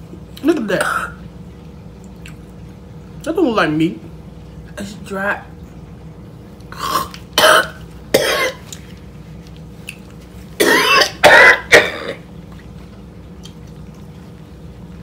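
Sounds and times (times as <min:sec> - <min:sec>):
woman coughing: 0:00.8 - 0:01.2, 0:06.8 - 0:08.6, 0:10.6 - 0:12.2.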